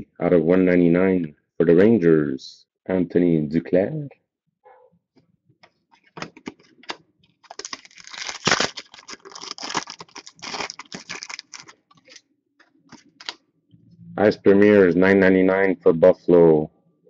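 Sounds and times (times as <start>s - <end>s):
foil wrapper crinkling and tearing: 6.8s - 12.2s, 12.9s - 13.4s.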